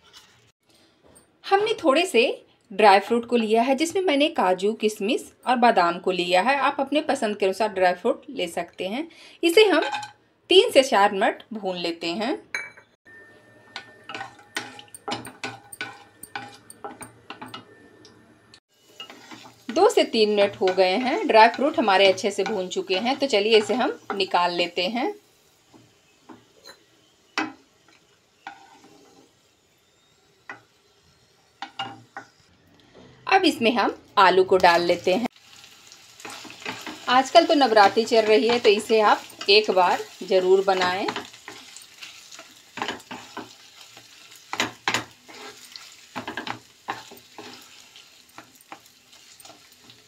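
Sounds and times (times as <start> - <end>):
wooden spatula scraping a pan: 0.0 - 0.5, 18.9 - 24.2, 28.5 - 29.4, 37.8 - 50.0
faint frying sizzle: 18.6 - 32.6, 33.4 - 50.0.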